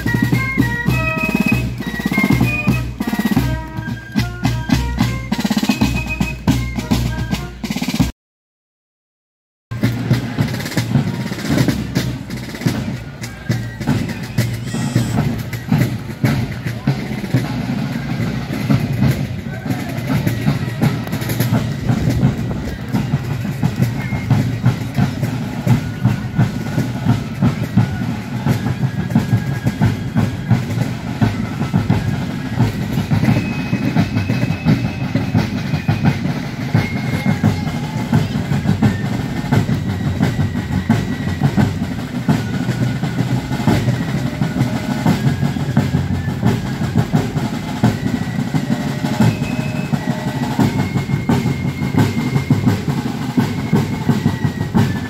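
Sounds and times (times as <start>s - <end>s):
shrill fife melody: 0.0s - 8.0s, 10.5s - 55.0s.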